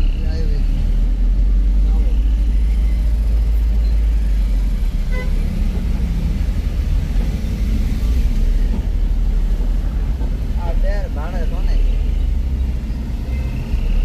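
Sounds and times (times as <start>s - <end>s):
car engine rumble: 0.0s - 14.0s.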